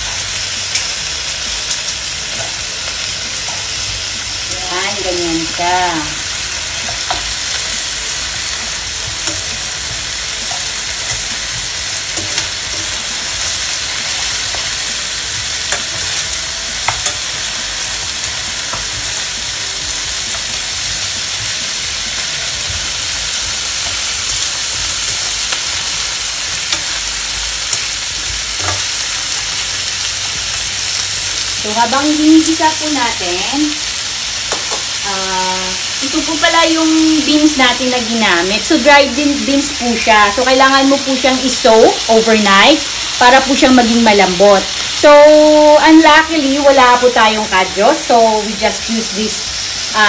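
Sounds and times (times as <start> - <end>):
meat sizzling in hot oil: 0.0 - 50.0
metal tongs clicking and scraping: 9.2 - 9.7, 10.4 - 15.0.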